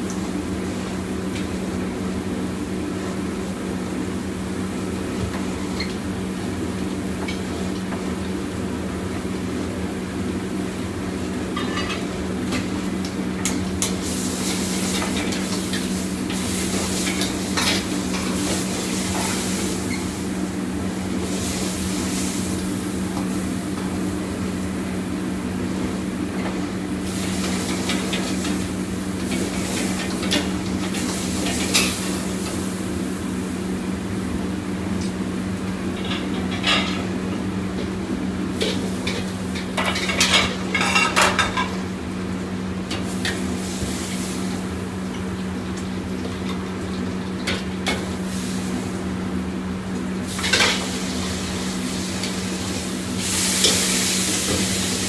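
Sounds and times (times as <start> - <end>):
kitchen equipment humming: 0.0 - 55.0
food sizzling in a wok: 10.8 - 34.2, 38.2 - 46.2, 46.8 - 55.0.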